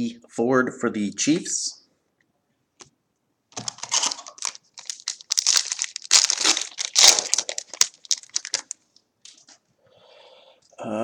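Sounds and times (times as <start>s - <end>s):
wrapper tearing and crinkling: 3.5s - 8.8s.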